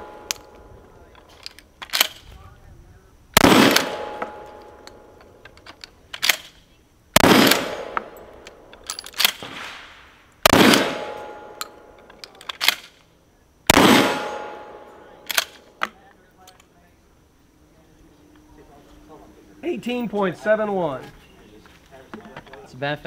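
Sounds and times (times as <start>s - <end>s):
shells being loaded: 0.1s - 2.3s, 3.4s - 9.6s, 10.5s - 13.1s, 14.1s - 16.7s
shotgun shots: 3.4s - 4.8s, 7.2s - 8.3s, 9.2s - 11.6s, 13.7s - 15.7s.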